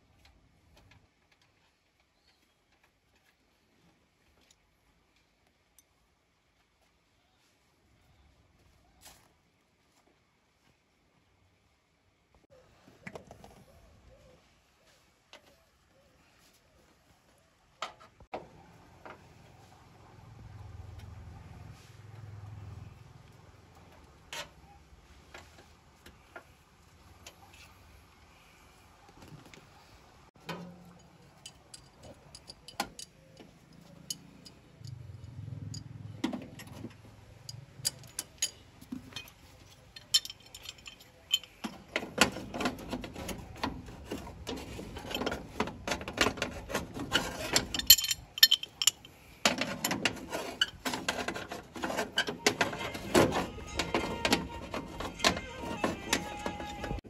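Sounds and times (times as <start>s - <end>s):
metal tools clicking and clattering: 30.5s - 35.9s, 37.4s - 57.0s.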